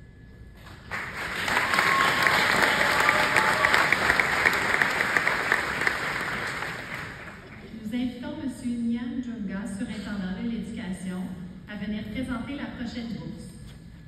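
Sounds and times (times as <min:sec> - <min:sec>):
audience applauding: 0:00.6 - 0:07.7.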